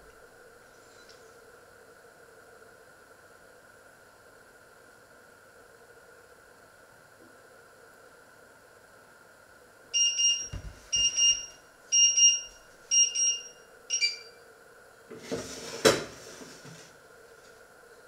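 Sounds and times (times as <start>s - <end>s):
electronic alarm beeping: 10.0s - 14.4s.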